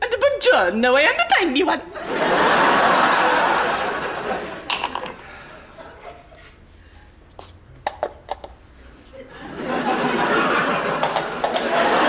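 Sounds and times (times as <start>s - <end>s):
studio audience laughing: 2.0s - 6.4s, 9.2s - 12.0s.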